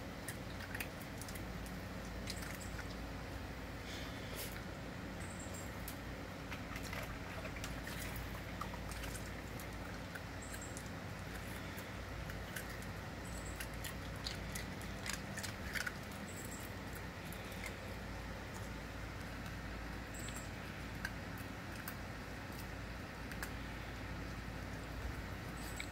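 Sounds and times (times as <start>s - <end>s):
low hum: 0.0s - 25.9s
dog crunching ice cubes: 6.4s - 24.3s.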